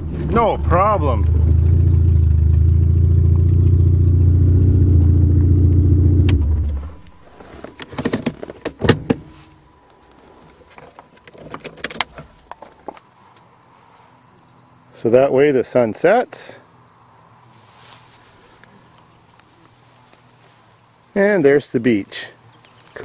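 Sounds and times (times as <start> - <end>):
car engine running: 0.0 - 7.6.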